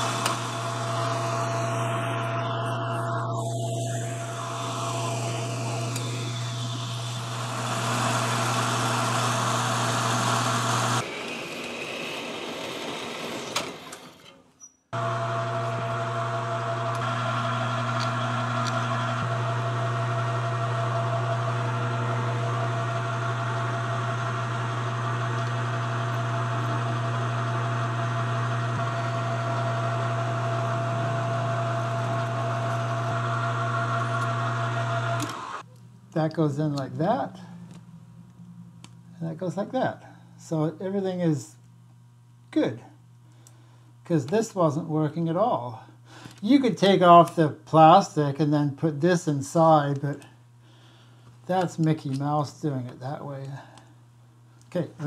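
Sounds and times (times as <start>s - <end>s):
metal lathe running: 0.0s - 14.3s, 15.0s - 35.6s.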